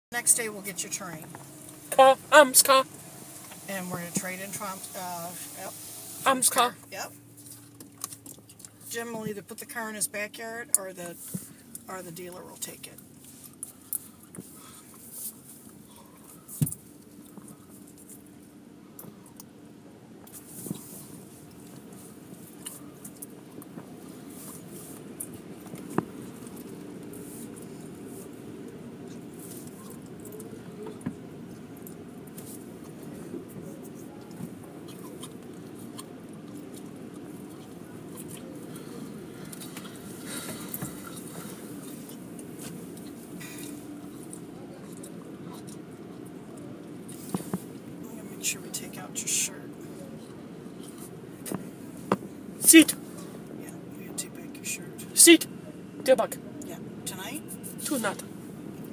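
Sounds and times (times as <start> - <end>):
car wash machinery droning: 0.1 - 16.5
muffled car wash machinery rumble: 0.1 - 58.9.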